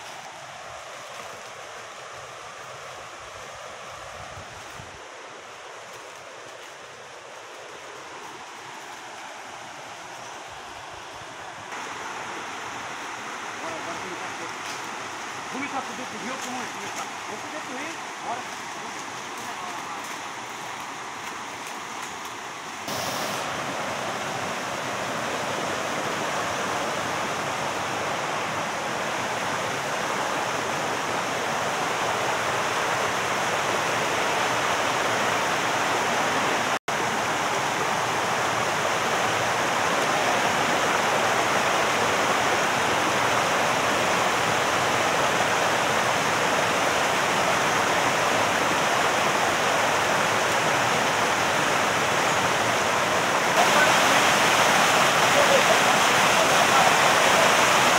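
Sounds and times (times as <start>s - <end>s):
water rushing over rocks: 0.0s - 57.9s.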